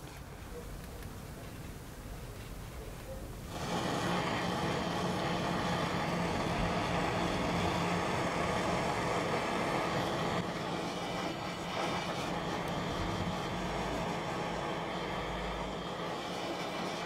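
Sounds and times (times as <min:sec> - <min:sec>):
blowtorch flame hissing: 0:00.0 - 0:17.0.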